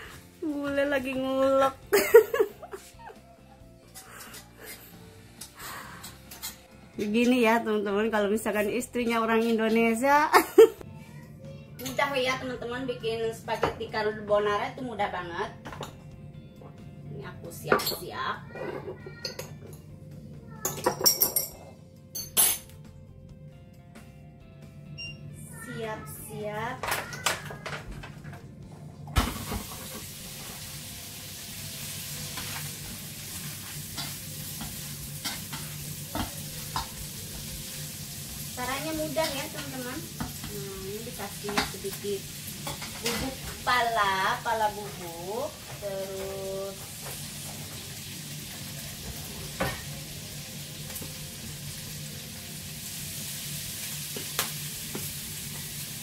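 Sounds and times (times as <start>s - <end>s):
meat sizzling: 0.0s - 3.2s, 29.2s - 56.0s
meat hitting a frying pan: 54.0s - 55.6s.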